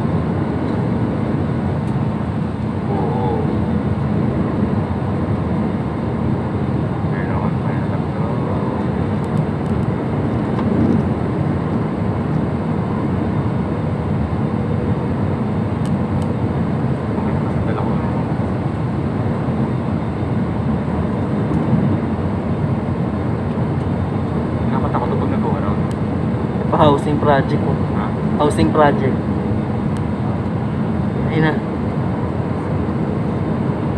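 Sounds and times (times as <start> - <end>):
airliner cabin rumble and hiss: 0.0 - 33.9.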